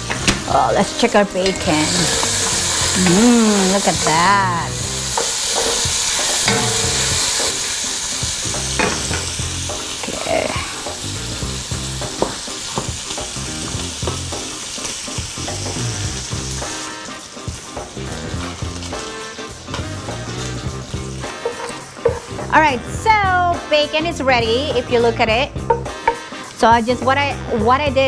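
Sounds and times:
utensil scraping a pan: 0.0s - 9.3s, 19.0s - 22.6s
bacon sizzling in a pan: 0.0s - 28.0s.

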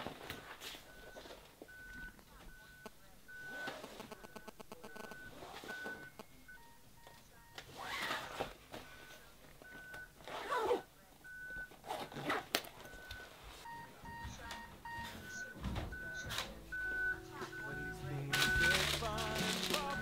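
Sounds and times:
short electronic beeps: 0.8s - 19.1s
cloth rustling: 18.4s - 20.0s.

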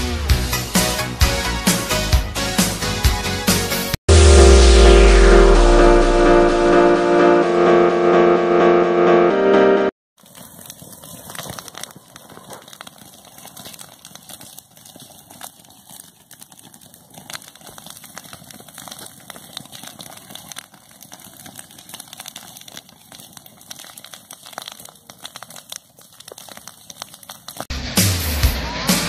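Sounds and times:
grass fire crackling: 10.2s - 27.7s.

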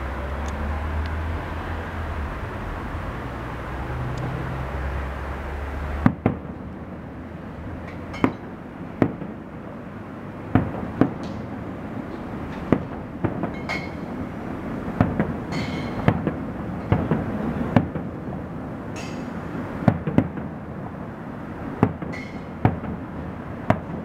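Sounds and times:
fireworks crackling: 0.0s - 24.0s
distant fireworks bangs: 5.8s - 7.0s, 8.0s - 24.0s.

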